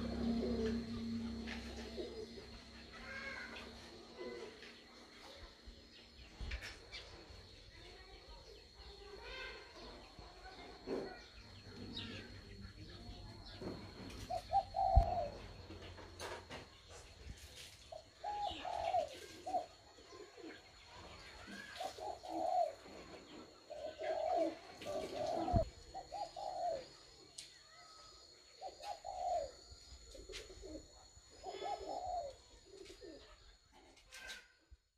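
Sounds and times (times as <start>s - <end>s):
thin high whine: 0.0s - 4.4s
pigeons cooing: 0.0s - 4.7s, 13.1s - 16.3s, 18.0s - 20.8s, 21.5s - 27.1s, 28.6s - 33.4s
faint small birds chirping: 0.0s - 34.9s.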